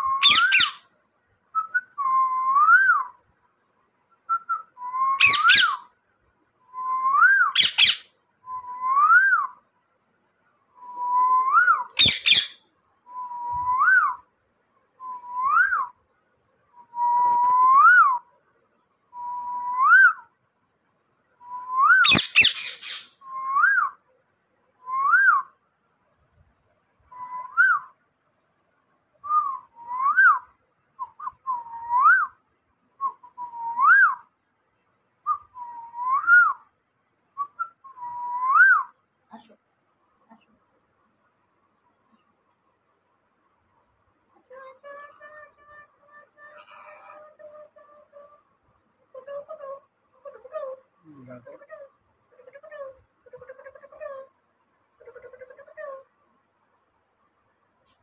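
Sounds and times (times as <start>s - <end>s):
parakeet whistling: 0.2s - 0.8s, 5.2s - 5.8s, 7.4s - 8.0s, 11.6s - 12.6s, 21.9s - 23.2s.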